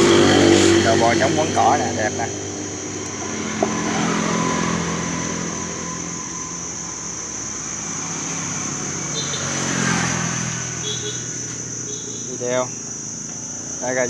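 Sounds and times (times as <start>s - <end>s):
steady high-pitched whine: 0.0s - 9.3s
passing vehicle engine: 0.0s - 14.0s.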